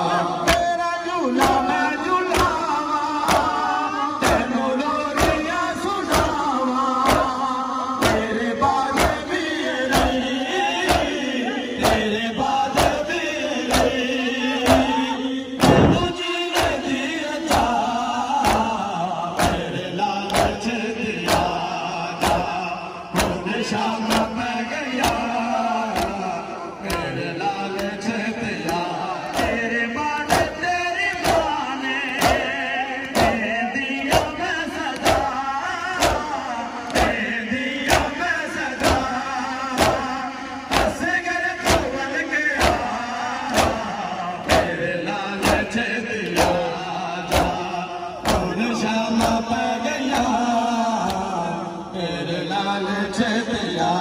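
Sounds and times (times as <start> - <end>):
men chanting: 0.0 - 54.0
hands slapping chests: 0.5 - 0.7, 2.3 - 2.6, 3.2 - 3.6, 5.1 - 5.5, 6.1 - 6.4, 7.0 - 7.4, 8.0 - 8.3, 15.6 - 16.8, 18.4 - 18.8, 19.4 - 19.7, 20.3 - 20.6, 23.2 - 23.4, 25.0 - 25.3, 25.9 - 26.2, 28.6 - 29.6, 30.2 - 33.4, 34.0 - 35.3, 36.0 - 37.2, 37.9 - 39.1, 39.8 - 40.1, 40.7 - 41.0, 41.6 - 42.0, 42.6 - 44.8, 45.4 - 45.6, 46.2 - 46.6, 47.3 - 47.6, 48.2 - 48.5.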